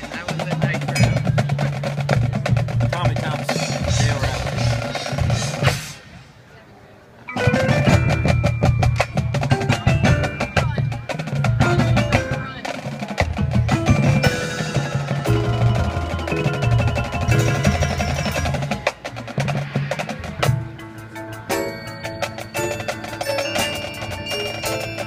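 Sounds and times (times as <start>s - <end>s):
snare and bass drums: 0.0s - 6.2s, 7.4s - 25.0s
marimbas ringing: 0.9s - 1.6s, 7.3s - 12.8s, 13.7s - 19.0s, 20.5s - 25.0s.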